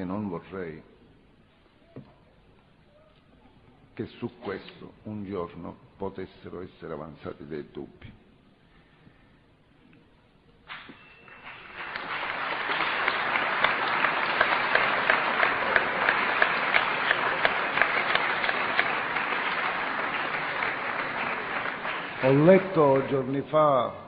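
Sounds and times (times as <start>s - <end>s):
audience applauding: 10.7s - 23.6s.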